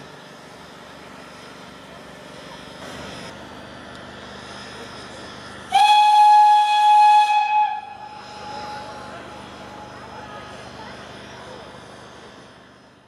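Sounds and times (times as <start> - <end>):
train rolling: 0.0 - 13.0
steam locomotive whistle blast: 5.7 - 9.1.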